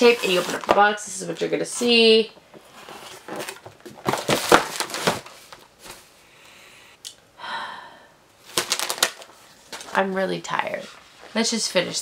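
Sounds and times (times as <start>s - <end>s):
snack box rustling and tapping: 2.5s - 6.0s, 8.5s - 9.9s
person sighing: 6.4s - 8.2s.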